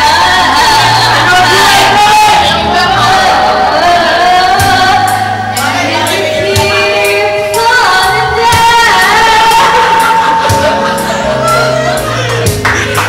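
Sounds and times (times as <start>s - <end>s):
woman singing into a microphone: 0.0s - 11.8s
backing track with a beat: 4.5s - 13.0s.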